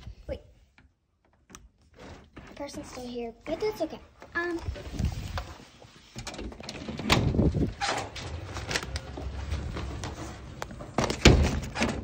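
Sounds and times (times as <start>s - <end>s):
door knocks and rattles: 6.2s - 8.5s, 10.9s - 12.0s.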